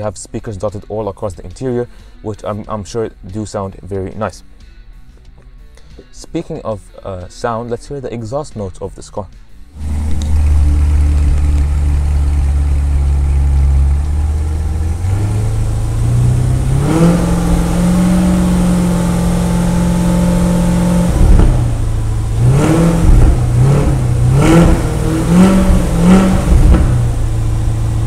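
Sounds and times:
sports car engine revving: 0:09.7 - 0:28.0.

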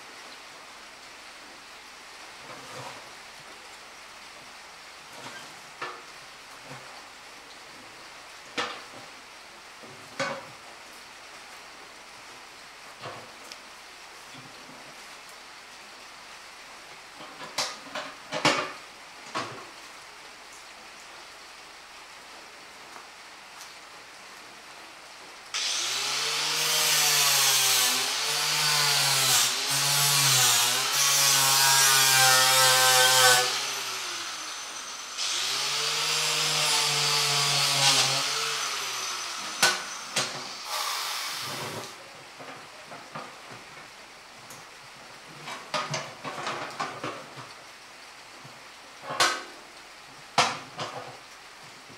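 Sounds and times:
electric power tool on metal: 0:25.6 - 0:42.0.

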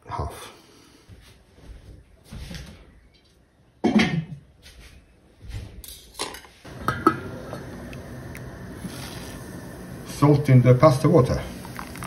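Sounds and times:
kitchenware knocks and clinks: 0:03.8 - 0:04.4
steady hiss: 0:06.7 - 0:12.0.

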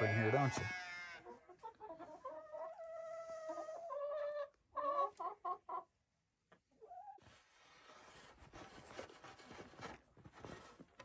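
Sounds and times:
hens clucking: 0:00.0 - 0:06.0.

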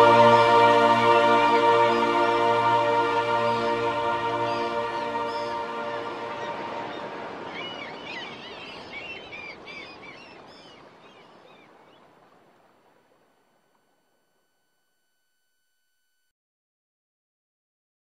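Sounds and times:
birds chirping: 0:00.0 - 0:12.1.

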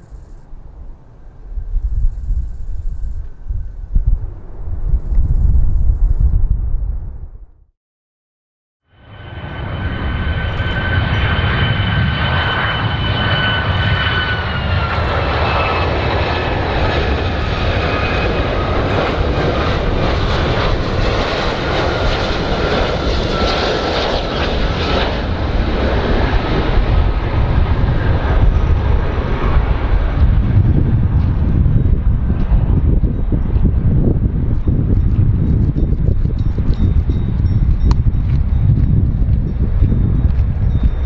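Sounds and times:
low rumble: 0:00.0 - 0:07.7, 0:09.0 - 0:41.0
jet engines whining: 0:09.0 - 0:35.7.

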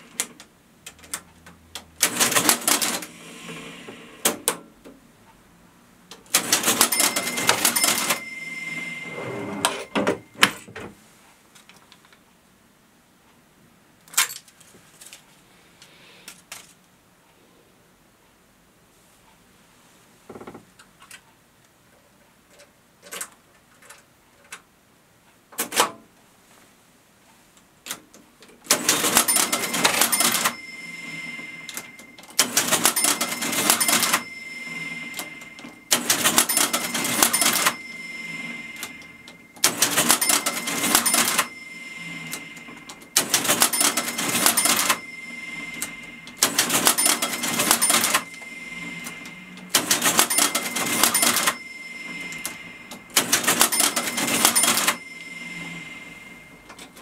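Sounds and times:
cash register clattering cycles: 0:01.9 - 0:04.4, 0:06.3 - 0:10.7, 0:28.7 - 0:57.0
cash register key clicks: 0:06.2 - 0:08.5, 0:46.4 - 0:48.6, 0:49.6 - 0:51.6, 0:52.4 - 0:55.4.

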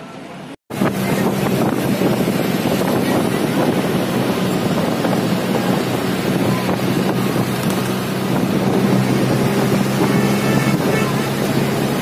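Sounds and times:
vehicle engine drone: 0:00.0 - 0:12.0
wind buffeting microphone: 0:00.7 - 0:12.0.

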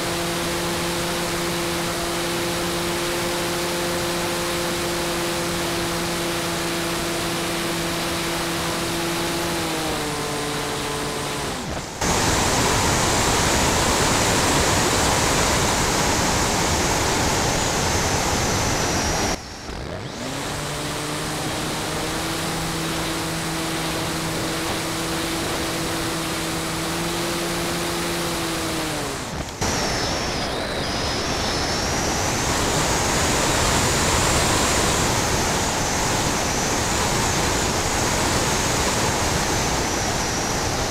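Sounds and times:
model airplane motor whining: 0:00.0 - 0:40.9
air rushing over microphone: 0:08.4 - 0:40.9.

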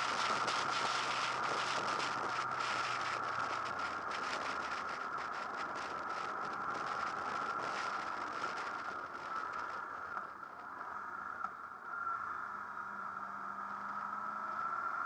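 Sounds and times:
motorcycle engine running: 0:00.0 - 0:10.5.

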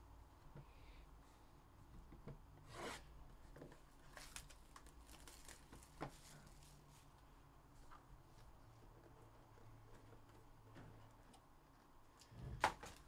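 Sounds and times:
cardboard and plastic rustling: 0:03.4 - 0:07.2.

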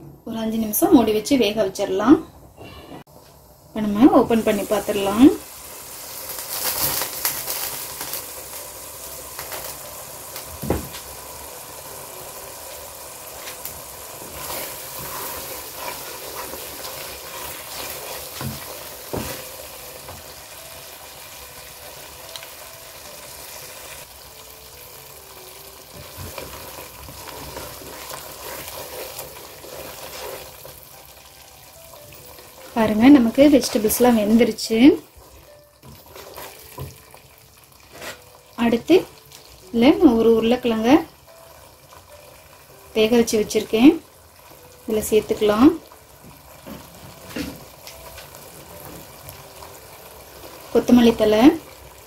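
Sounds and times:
masala sizzling in a pot: 0:00.3 - 0:52.0.

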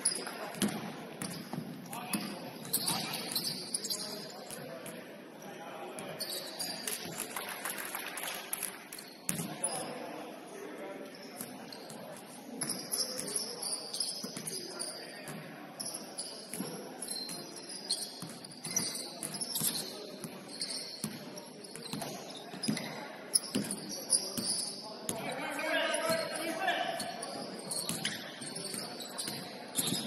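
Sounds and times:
sneakers squeaking on court: 0:00.0 - 0:05.0, 0:06.0 - 0:07.2, 0:11.1 - 0:30.0
players' voices: 0:00.0 - 0:30.0
ball bouncing: 0:00.1 - 0:03.4.

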